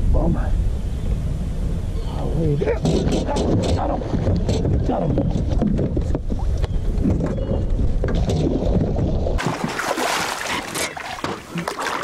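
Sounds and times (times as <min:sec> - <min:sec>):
wind rumble on microphone: 0:00.0 - 0:09.4
fish splashing in water: 0:09.4 - 0:12.0.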